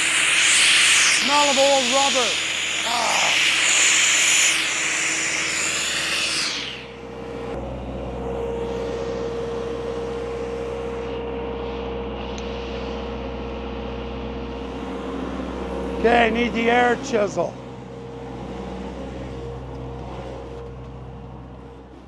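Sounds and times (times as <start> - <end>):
compressed air blasting from hose: 0.0 - 7.0
diesel engine droning: 0.0 - 22.0.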